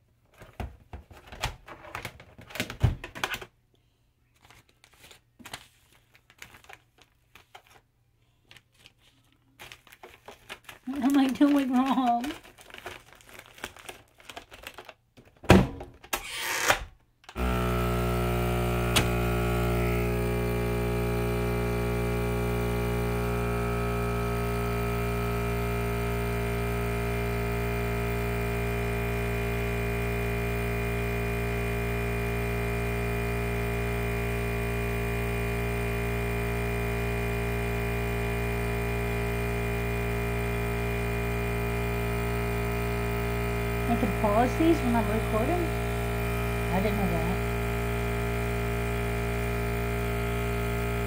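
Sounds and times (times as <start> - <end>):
vacuum sealer pump humming: 9.6 - 14.9, 17.3 - 51.0.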